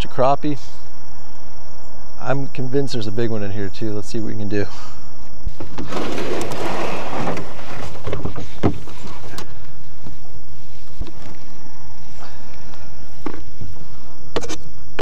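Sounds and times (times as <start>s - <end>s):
rustling scrape: 5.5s - 9.4s.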